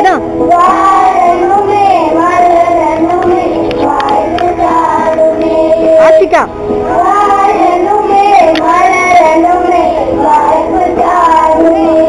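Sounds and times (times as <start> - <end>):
electronic keyboard: 0.0 - 12.0
children singing together: 0.3 - 12.0.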